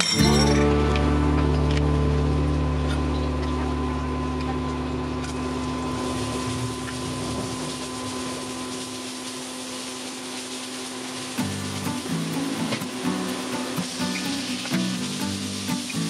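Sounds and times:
garlic sizzling in hot oil: 6.0s - 16.0s.

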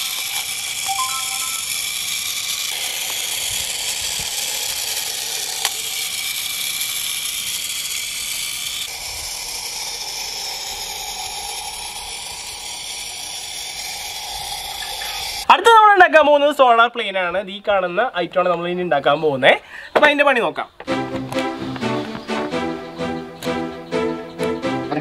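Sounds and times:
toy motor whirring: 0.0s - 15.5s.

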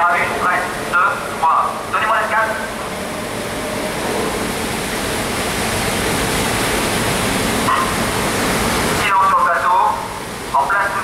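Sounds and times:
rushing water: 0.0s - 11.0s.

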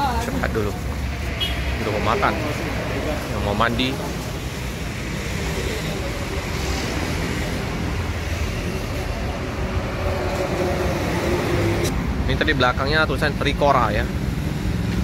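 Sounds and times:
passing road traffic: 0.0s - 15.0s.

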